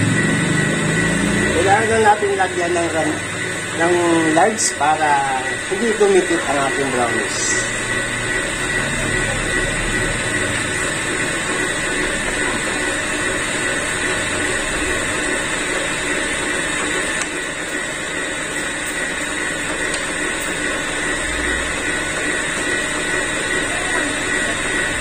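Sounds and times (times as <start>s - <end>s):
stand mixer motor whining: 0.0s - 25.0s.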